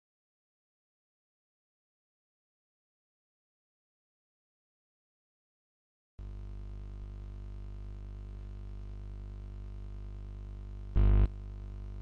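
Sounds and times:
low electrical mains hum: 6.2s - 12.0s.

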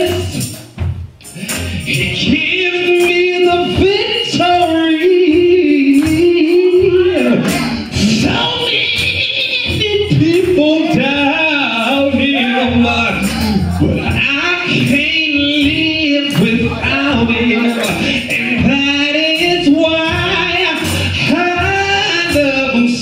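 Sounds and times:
man singing gospel into microphone: 0.0s - 0.6s, 1.2s - 23.0s.

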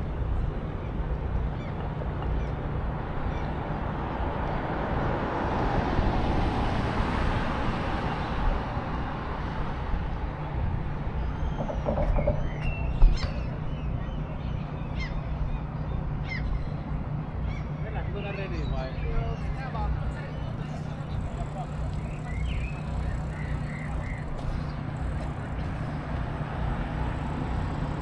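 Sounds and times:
low traffic rumble: 0.0s - 28.0s
bird calls and chirps: 11.2s - 25.4s.

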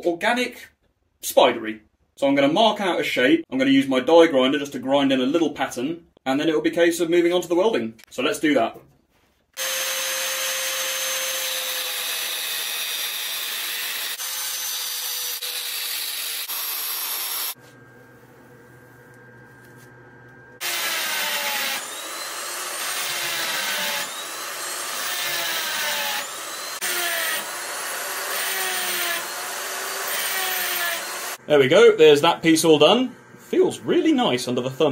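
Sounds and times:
angle grinder cutting steel: 9.6s - 17.6s, 20.6s - 31.4s
die grinder whine: 9.6s - 18.0s, 19.1s - 31.4s.

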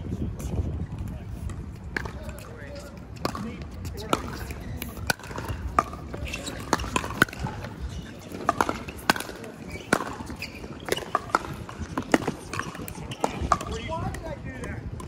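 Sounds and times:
outdoor court background noise: 0.0s - 15.0s
paddles hitting plastic ball: 3.2s - 14.8s.

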